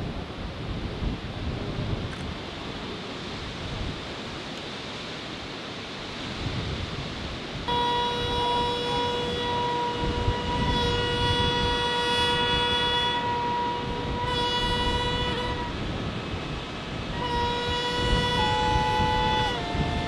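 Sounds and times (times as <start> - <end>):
wind instrument long held note: 7.6 - 20.0.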